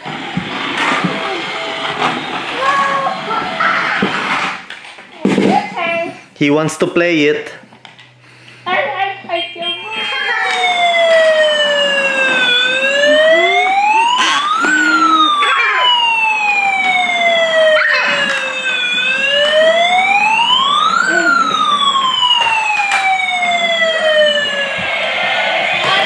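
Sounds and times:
toy electronic siren wailing: 0:09.8 - 0:26.0.

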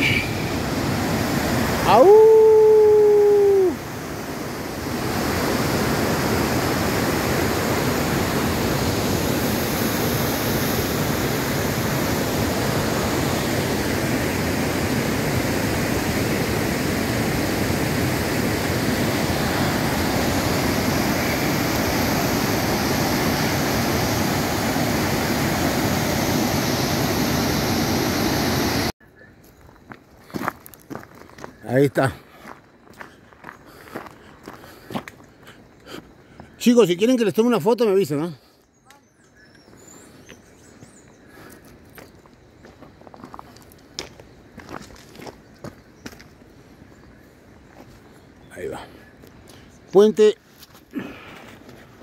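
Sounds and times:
rushing whitewater rapids: 0:03.8 - 0:28.9.

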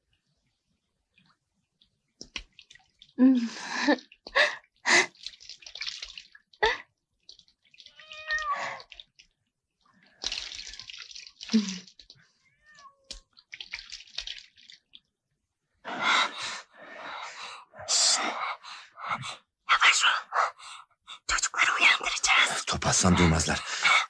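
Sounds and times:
water splashing from jug: 0:01.1 - 0:15.2.

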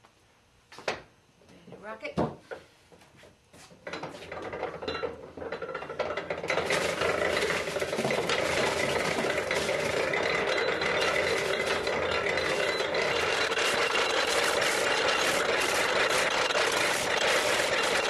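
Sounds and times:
apple grinder grinding: 0:04.1 - 0:18.0.

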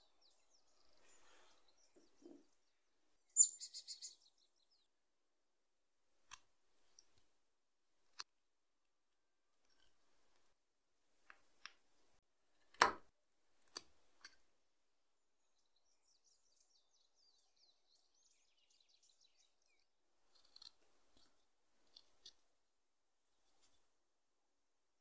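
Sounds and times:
faint bird chirping: 0:00.0 - 0:05.0, 0:15.2 - 0:22.3
knife paring dry wood: 0:12.5 - 0:14.4, 0:20.3 - 0:22.5.

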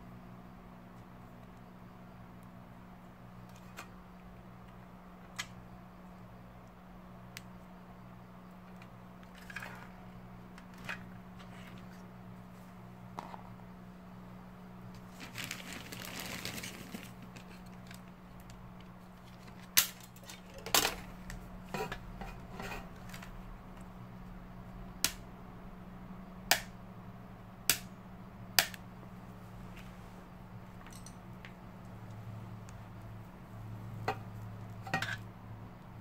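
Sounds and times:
steady low hum: 0:00.0 - 0:36.0
rustle: 0:14.9 - 0:23.9.

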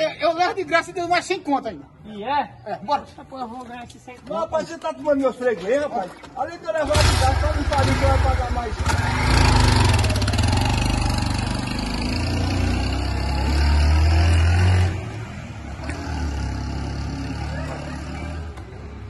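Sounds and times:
small motorcycle engine revving: 0:07.0 - 0:15.0.

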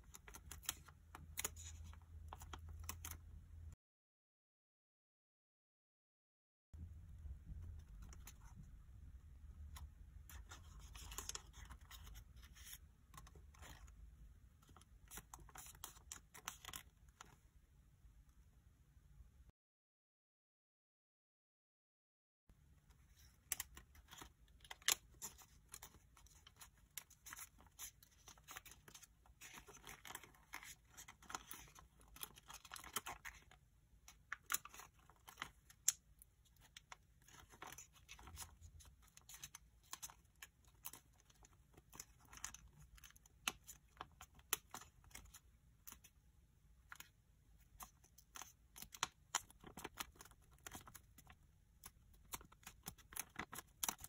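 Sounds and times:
paper crinkling while folded: 0:00.0 - 0:03.2, 0:09.7 - 0:14.0, 0:14.6 - 0:17.4, 0:22.9 - 0:46.2, 0:46.8 - 0:54.0.

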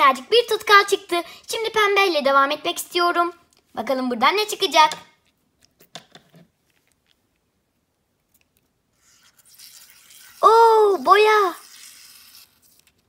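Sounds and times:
faint hiss of scissors cutting balloon: 0:08.9 - 0:13.0.

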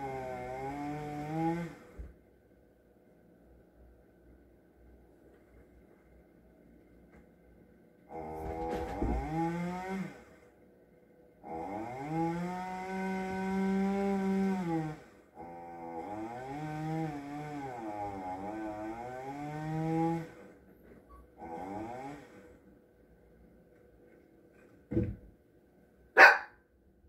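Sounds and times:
chainsaw revving: 0:00.0 - 0:02.0, 0:08.1 - 0:10.5, 0:11.4 - 0:20.6, 0:21.4 - 0:22.6.

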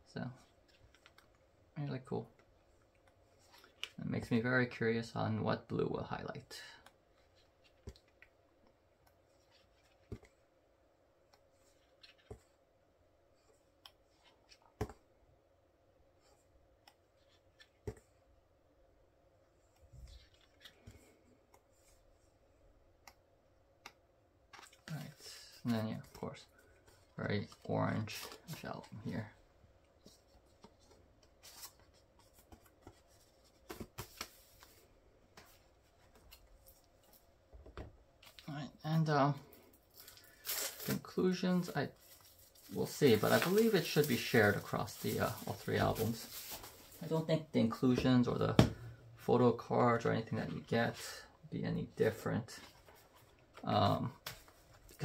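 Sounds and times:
hands handling cardboard: 0:11.3 - 0:12.6, 0:24.5 - 0:38.5, 0:41.9 - 0:49.0
book pages turning: 0:11.4 - 0:12.6, 0:19.8 - 0:21.2, 0:30.0 - 0:38.5, 0:42.0 - 0:47.2.

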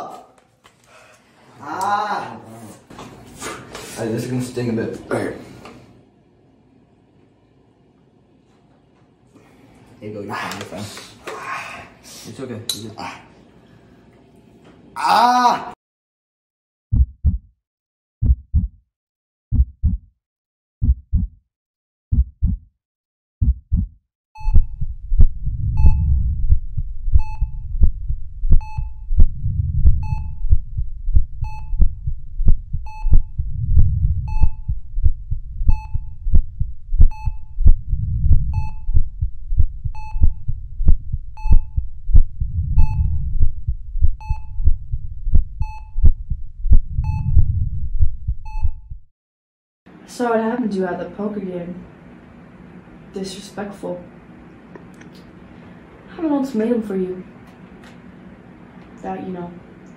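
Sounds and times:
heartbeat thumps: 0:16.9 - 0:17.5, 0:18.2 - 0:18.8, 0:19.5 - 0:20.1, 0:20.8 - 0:21.4, 0:22.1 - 0:22.7, 0:23.4 - 0:49.1
low rumbling drone: 0:24.4 - 0:49.1.

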